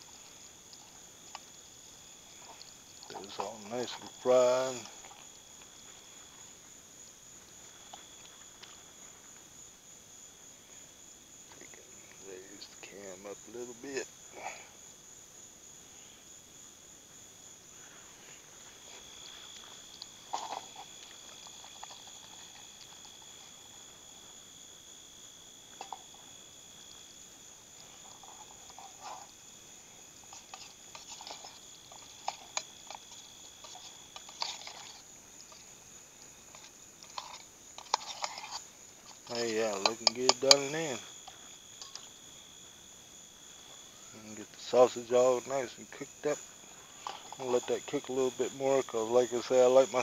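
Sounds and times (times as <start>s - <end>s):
crickets chirping: 0.0s - 50.0s.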